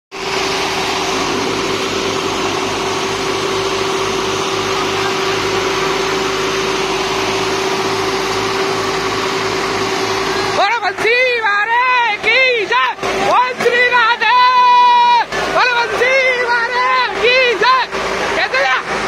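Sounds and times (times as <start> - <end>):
diesel tractor engines under load: 0.1 - 19.0.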